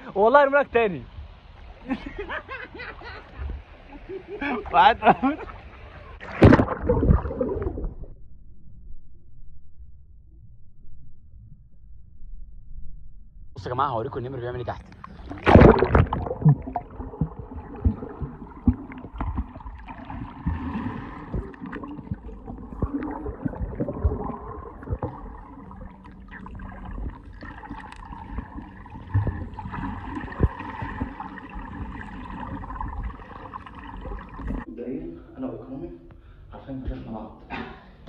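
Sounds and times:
underwater gurgling: 5.5s - 8.1s, 14.8s - 34.7s
underwater knocks and clicks: 14.9s - 33.2s.

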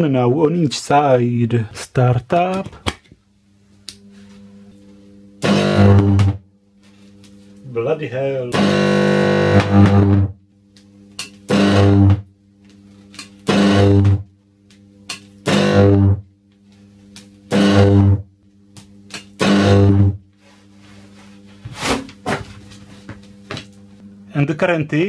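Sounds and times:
faint steady hum: 0.0s - 25.0s
high-voltage arc buzzing: 4.7s - 20.3s.

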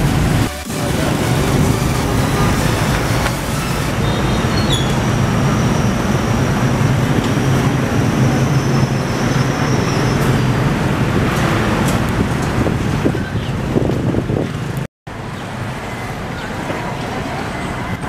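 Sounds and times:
diesel engine rumbling: 0.0s - 12.8s.

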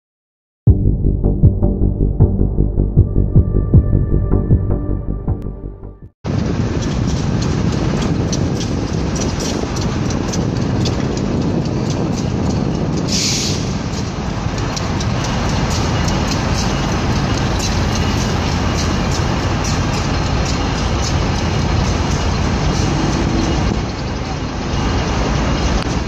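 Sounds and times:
diesel locomotive engine: 2.8s - 26.0s
wheels clicking over rail joints: 6.3s - 26.0s.

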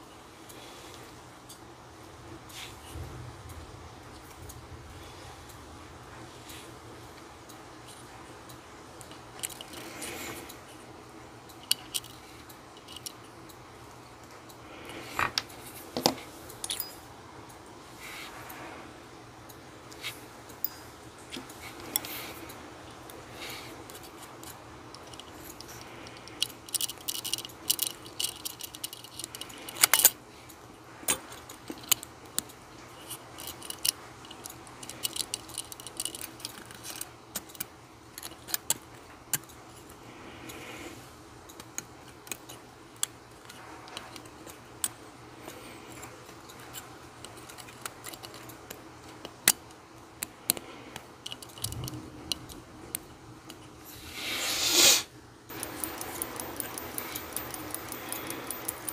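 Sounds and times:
tweezers clicking on metal: 55.5s - 58.9s.

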